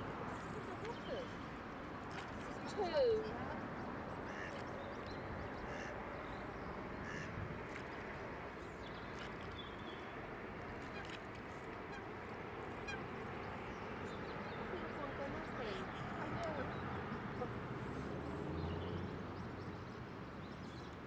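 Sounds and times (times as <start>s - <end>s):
outdoor background noise: 0.0s - 21.0s
faint waterfowl calls: 4.1s - 4.7s, 5.6s - 6.0s, 6.9s - 7.9s, 10.8s - 13.2s.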